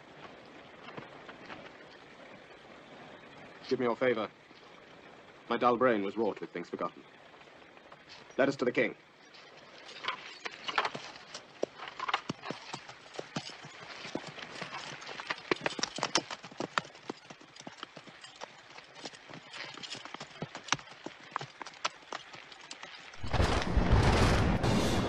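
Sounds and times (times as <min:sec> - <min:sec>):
horse hooves clip-clopping: 0:00.0 - 0:03.7, 0:09.1 - 0:23.2.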